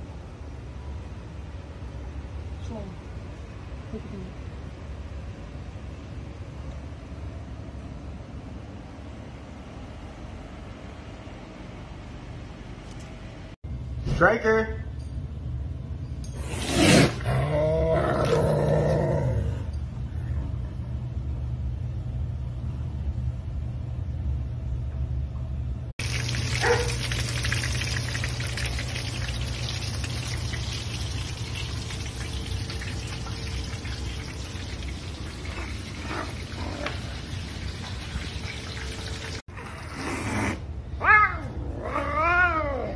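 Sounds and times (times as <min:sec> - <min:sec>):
steady low hum: 0:00.0 - 0:39.8
chicken sizzling in oil: 0:26.0 - 0:39.4
cat growling: 0:39.6 - 0:42.9.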